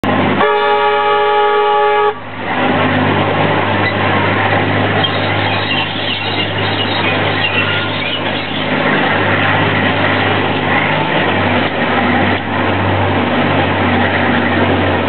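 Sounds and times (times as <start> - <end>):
locomotive engine droning: 0.0 - 15.0
train moving along track: 0.0 - 15.0
locomotive horn blast: 0.3 - 2.4.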